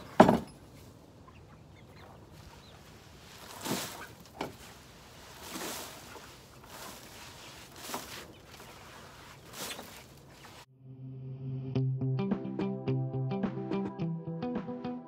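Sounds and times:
wood shavings swept on floor: 0:02.3 - 0:10.7.

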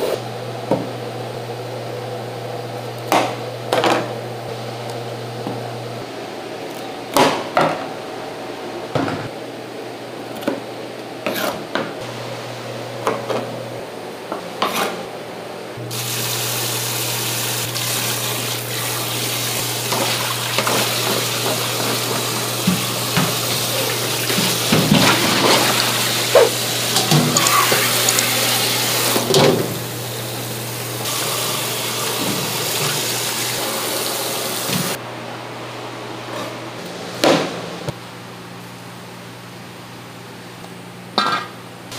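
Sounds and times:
tap water running into sink: 0:17.6 - 0:29.8, 0:31.1 - 0:35.0.

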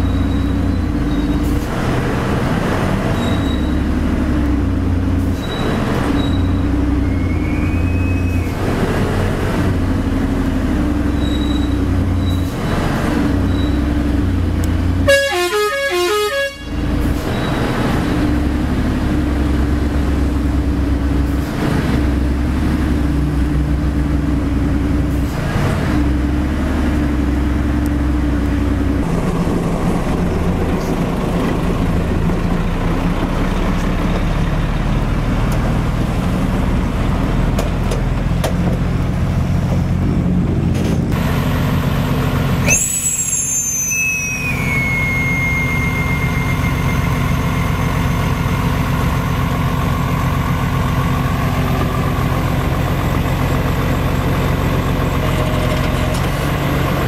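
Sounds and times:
heavy diesel engine running: 0:00.0 - 0:57.0
high-pitched squeal: 0:05.3 - 0:08.6, 0:42.6 - 0:49.0.

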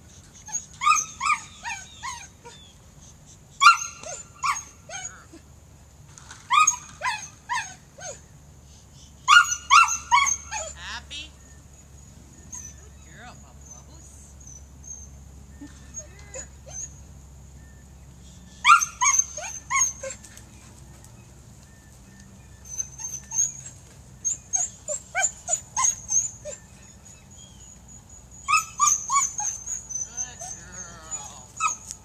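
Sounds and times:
dog barking in sharp yips: 0:09.3 - 0:10.8.

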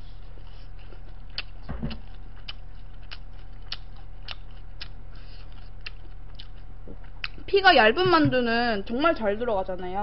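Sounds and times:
person chewing: 0:00.0 - 0:07.5
low thud: 0:01.7 - 0:02.0.

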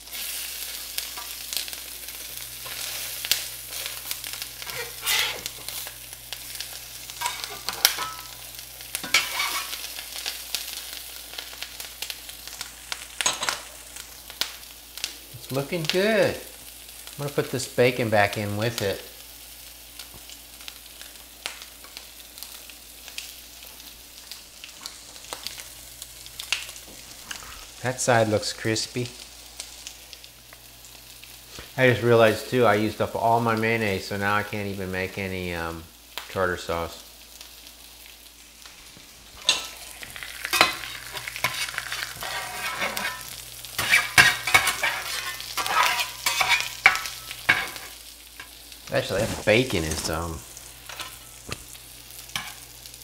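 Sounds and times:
food sizzling in a skillet: 0:00.0 - 0:53.0
spatula scraping a pan: 0:02.6 - 0:08.3, 0:08.9 - 0:09.9, 0:39.4 - 0:50.2
grease popping and crackling: 0:38.7 - 0:52.6.

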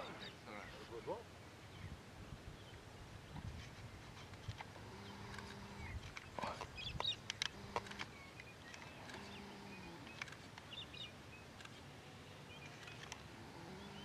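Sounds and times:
bird chirps: 0:05.0 - 0:11.6
sharp clicks: 0:05.3 - 0:09.3, 0:10.0 - 0:10.7.

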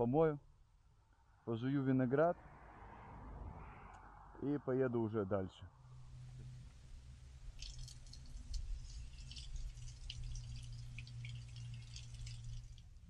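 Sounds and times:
water splashing and dripping: 0:07.5 - 0:13.0.

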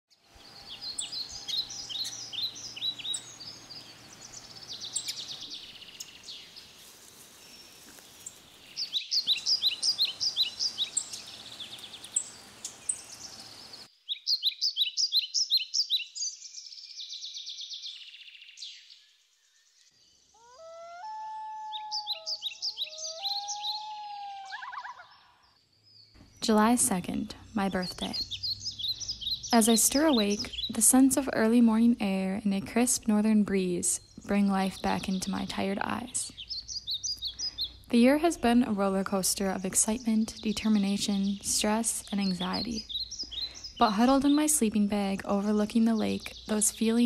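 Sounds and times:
songbirds singing: 0:00.1 - 0:47.0
faint steady hiss: 0:00.2 - 0:14.0.

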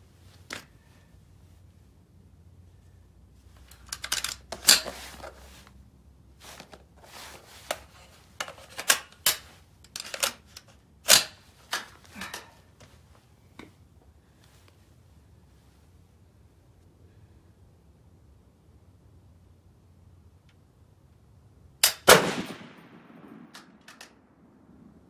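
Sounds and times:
rifle action metal clacks: 0:03.6 - 0:05.3, 0:07.6 - 0:12.5, 0:21.8 - 0:22.9, 0:23.5 - 0:24.2.

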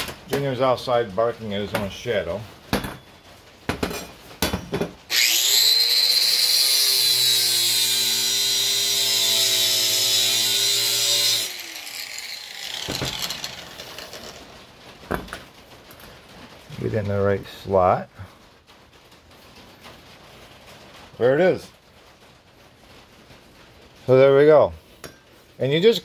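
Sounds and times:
angle grinder grinding steel: 0:05.1 - 0:14.5.

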